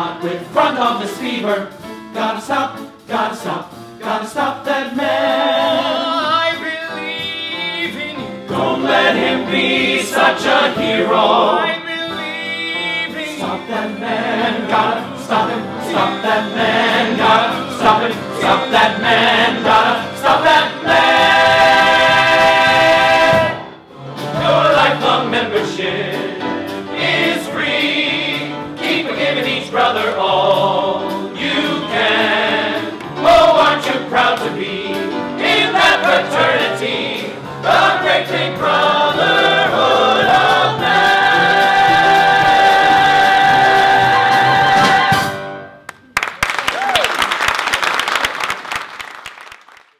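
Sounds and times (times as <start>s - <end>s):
cast singing in chorus: 13.4s - 26.4s, 27.0s - 45.3s.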